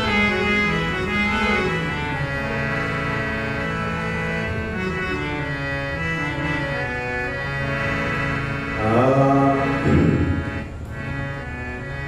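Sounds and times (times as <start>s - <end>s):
harmonium playing chords: 0.0s - 12.0s
man singing: 8.8s - 10.3s.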